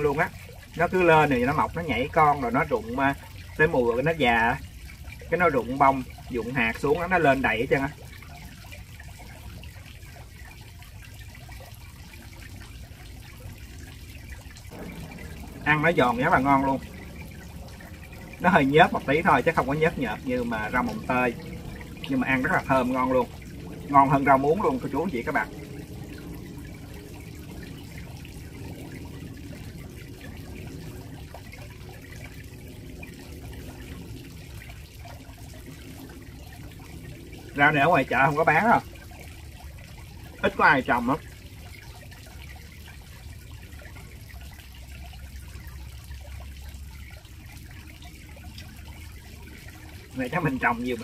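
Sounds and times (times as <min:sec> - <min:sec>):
low rumble: 0:13.2 - 0:40.0.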